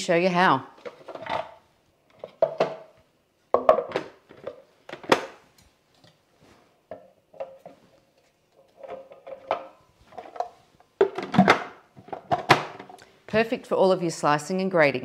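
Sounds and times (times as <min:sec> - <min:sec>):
plastic parts knocking and clunking: 0:00.8 - 0:06.2, 0:06.9 - 0:13.0.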